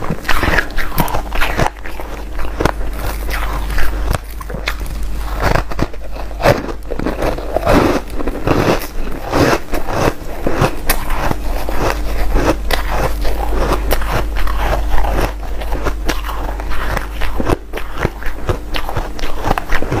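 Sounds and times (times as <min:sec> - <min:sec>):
ice being chewed: 0:00.0 - 0:20.0.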